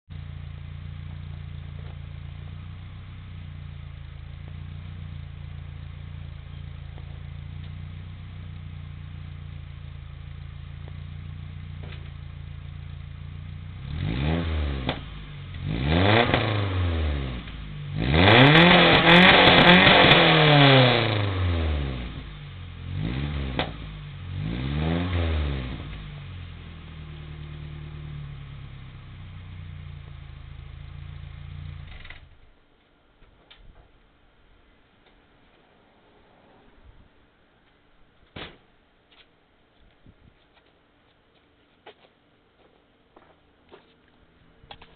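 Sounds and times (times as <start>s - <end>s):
car engine idling and revving: 0.1s - 32.6s.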